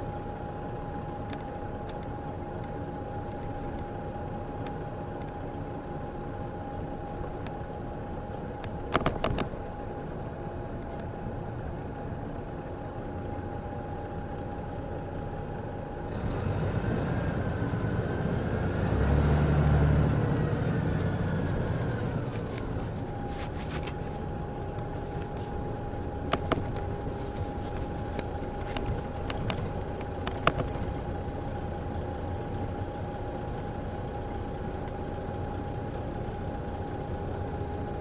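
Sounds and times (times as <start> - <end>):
diesel engine idling: 0.0 - 38.0
steady whine: 19.6 - 38.0.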